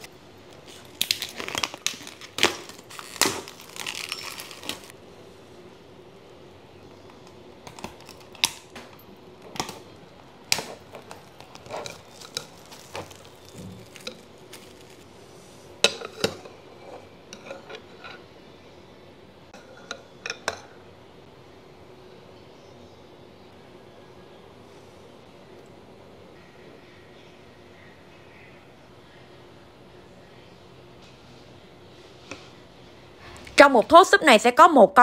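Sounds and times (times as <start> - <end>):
cling film crinkling and tearing: 0.0 - 4.9, 9.6 - 15.4.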